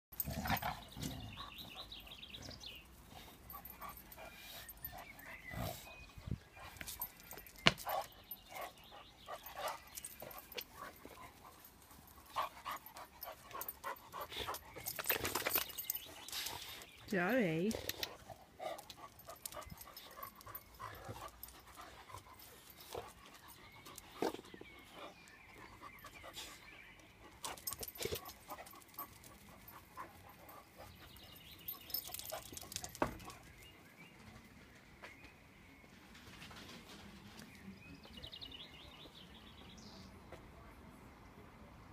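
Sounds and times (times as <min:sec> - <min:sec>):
dogs scuffling: 0:13.6 - 0:16.9.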